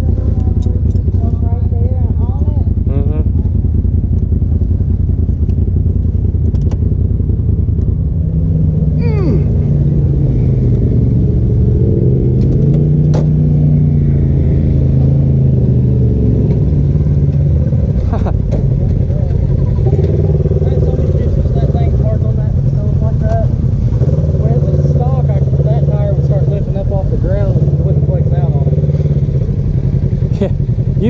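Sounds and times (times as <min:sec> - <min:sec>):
turbocharged engine running: 0:00.0 - 0:31.0
knocks and rattles over rough ground: 0:16.4 - 0:21.9.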